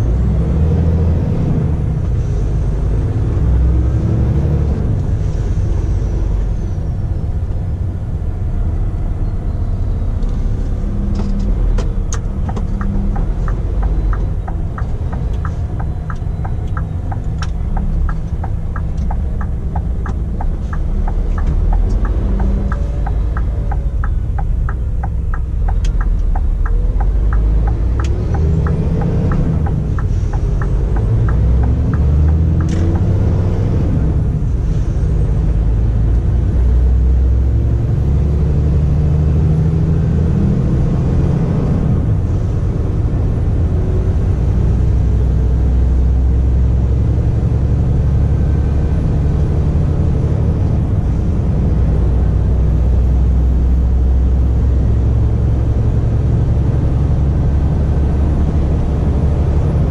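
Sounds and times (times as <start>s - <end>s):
diesel engine rumbling: 0.0s - 59.9s.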